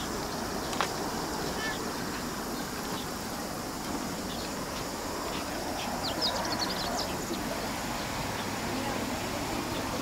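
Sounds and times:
outdoor background hiss: 0.0s - 10.0s
small bird chirping: 4.2s - 8.6s.

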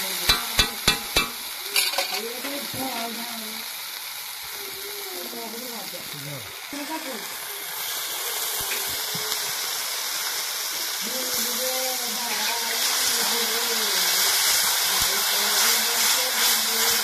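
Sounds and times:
masala frying and sizzling: 0.0s - 17.0s
spatula stirring in a pan: 0.3s - 3.0s, 12.2s - 17.0s.

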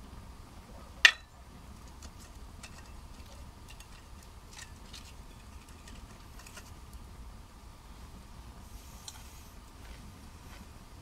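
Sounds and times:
low steady hiss: 0.0s - 11.0s
wood fire crackling: 1.0s - 8.0s.

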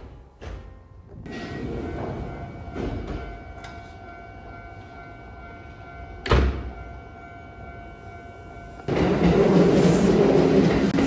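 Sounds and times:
train door shutting: 0.0s - 4.0s, 6.2s - 6.8s, 8.8s - 11.0s.

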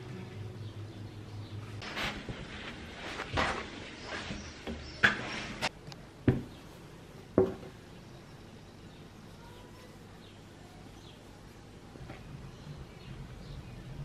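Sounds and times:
faint bird chirps: 7.9s - 11.5s.

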